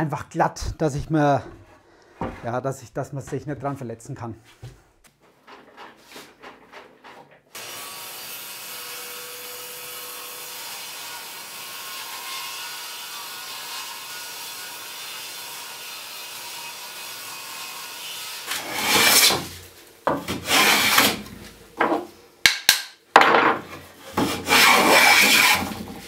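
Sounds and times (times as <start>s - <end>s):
table saw ripping plank: 5.8s - 26.0s
board knocks: 21.8s - 22.1s, 23.2s - 24.4s.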